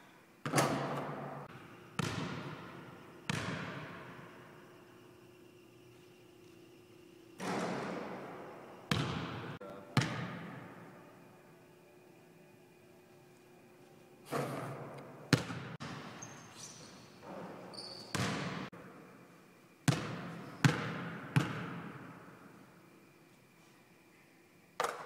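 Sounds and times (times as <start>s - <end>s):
basketball bouncing on gym floor: 2.0s - 4.1s, 8.9s - 10.6s, 14.3s - 16.2s, 17.2s - 18.7s, 19.9s - 22.1s
short high squeaks: 16.2s - 18.2s.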